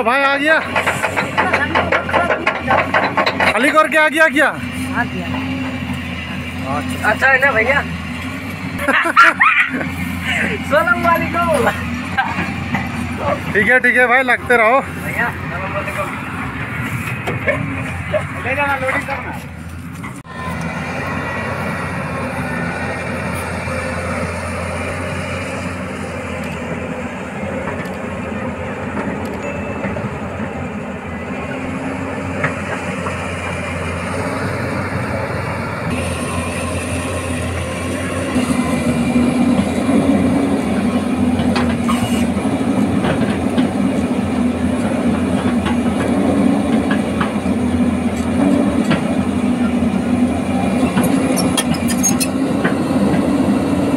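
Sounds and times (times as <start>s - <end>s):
excavator diesel engine running: 0.0s - 53.9s
sharp knocks and clanks: 0.4s - 4.4s.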